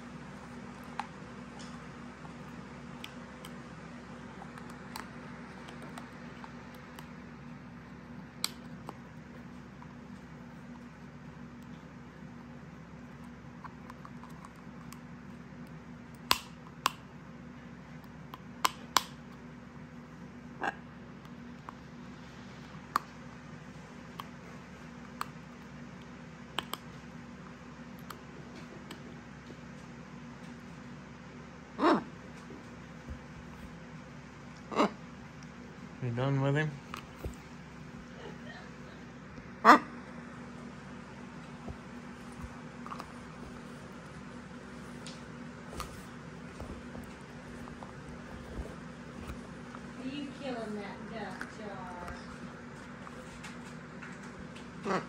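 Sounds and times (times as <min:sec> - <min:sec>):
steady low hum: 0:00.0 - 0:55.0.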